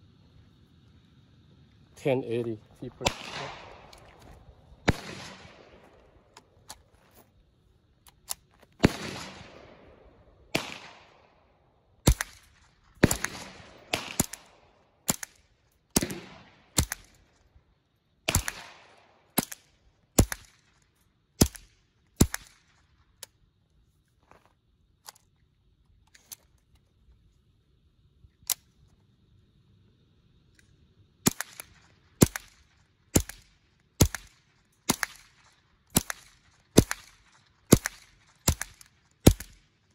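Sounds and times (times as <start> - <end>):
rifle gunshots with echo: 2.9 - 6.3, 8.8 - 17.2, 18.3 - 20.6, 31.2 - 39.6.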